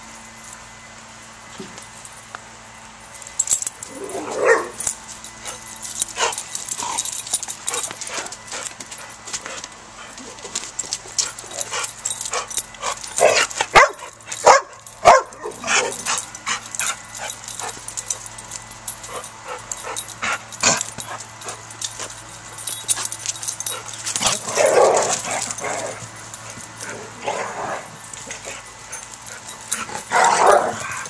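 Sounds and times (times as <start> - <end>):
dogs barking and yipping: 3.4 - 31.0.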